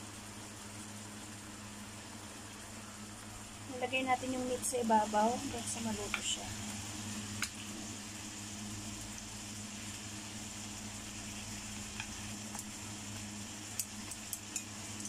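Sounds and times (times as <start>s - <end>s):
kitchen appliance fan humming: 0.0s - 15.0s
food simmering in a pan: 0.1s - 15.0s
chopsticks tapping a pan: 6.1s - 6.4s.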